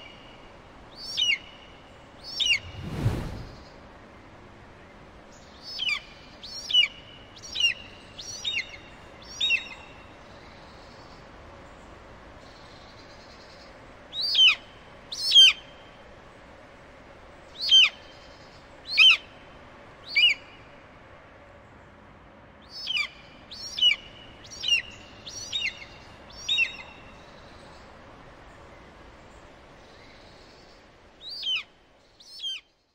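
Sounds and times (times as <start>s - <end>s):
bird calling high cries: 31.2s - 32.7s.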